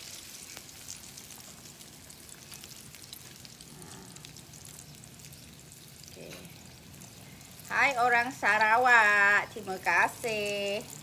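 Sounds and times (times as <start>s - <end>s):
deep-frying sizzle with crackling: 0.0s - 11.0s.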